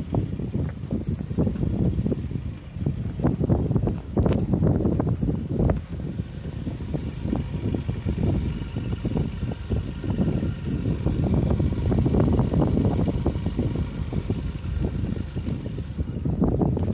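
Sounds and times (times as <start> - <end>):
car engine idling exhaust note: 0.0 - 16.9.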